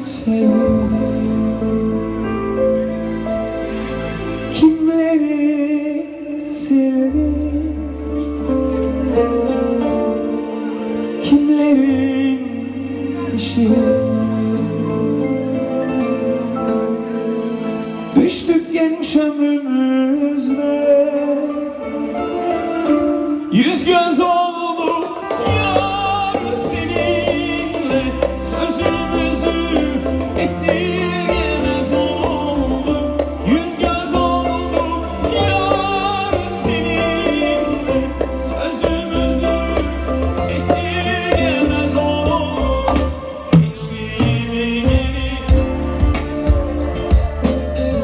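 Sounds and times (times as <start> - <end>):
man singing with vibrato: 0.0 - 2.6, 4.5 - 8.6, 10.2 - 48.0
bass: 0.0 - 19.2, 25.2 - 48.0
acoustic guitar: 0.0 - 48.0
violin: 0.0 - 48.0
drums: 22.4 - 48.0
clarinet: 25.4 - 48.0.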